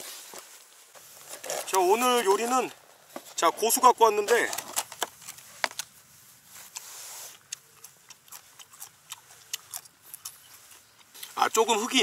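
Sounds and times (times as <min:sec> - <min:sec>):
herb sprigs rustling: 0:00.0 - 0:12.0
plastic pack clicking and crinkling: 0:04.2 - 0:05.9
stem being nibbled: 0:05.1 - 0:12.0.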